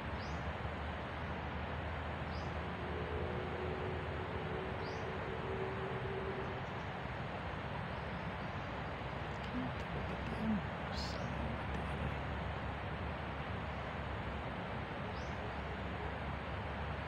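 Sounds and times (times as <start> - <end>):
faint low hum: 7.8 - 13.9.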